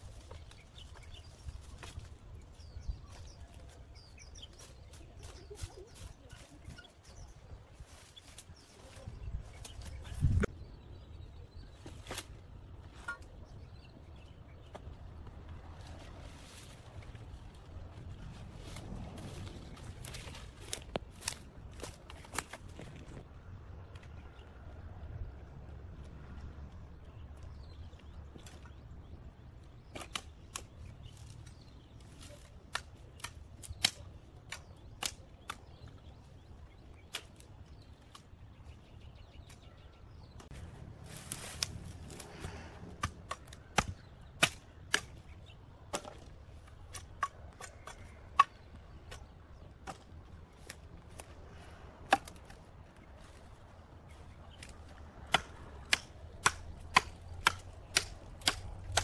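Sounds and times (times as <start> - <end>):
dry branches cracking: 0.0 - 6.5, 14.8 - 23.2, 29.6 - 39.8, 40.4 - 59.0
brush rustling: 0.0 - 10.5, 14.9 - 23.2, 40.4 - 59.0.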